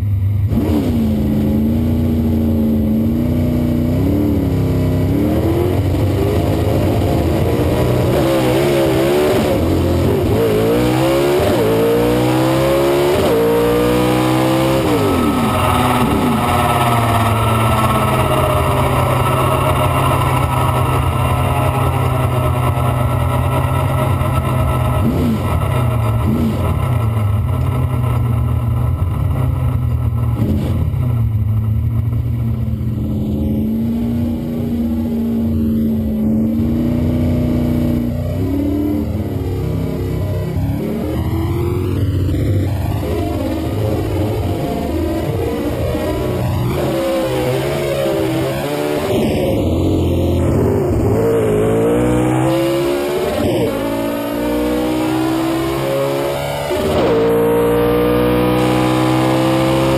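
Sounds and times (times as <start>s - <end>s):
engine revving through gears: 0.5s - 31.3s, 32.9s - 59.9s.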